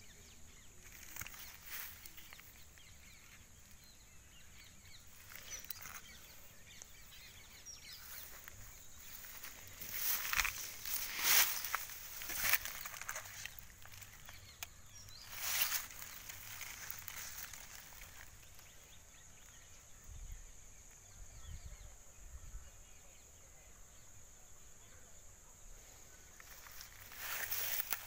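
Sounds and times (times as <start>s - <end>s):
footsteps rustling through grass: 0.8s - 3.8s, 4.9s - 18.8s, 26.3s - 28.0s.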